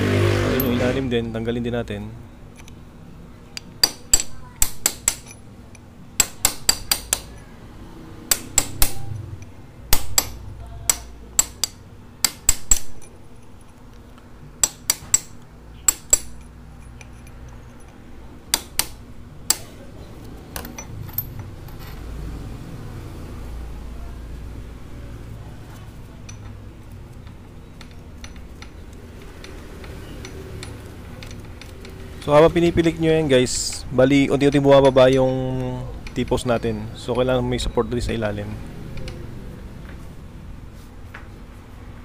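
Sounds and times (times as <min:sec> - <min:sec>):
hammer tapping metal punch: 0:03.5 - 0:05.5, 0:06.2 - 0:07.5, 0:08.3 - 0:13.2, 0:14.6 - 0:19.8.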